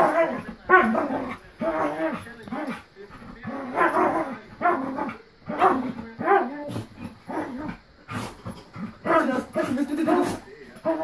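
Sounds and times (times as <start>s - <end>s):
dog barking: 3.6s - 6.6s, 9.0s - 11.0s.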